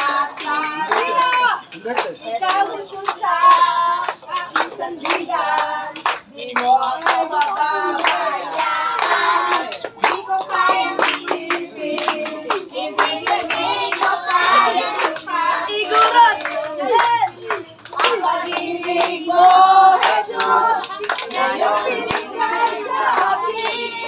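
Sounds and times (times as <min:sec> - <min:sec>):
hands clapping: 0:00.0 - 0:24.0
children singing: 0:07.2 - 0:24.0.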